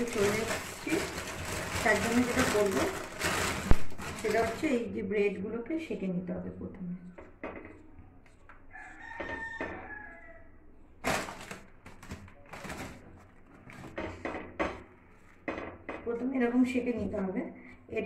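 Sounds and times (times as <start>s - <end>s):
rooster crowing: 8.7s - 10.6s.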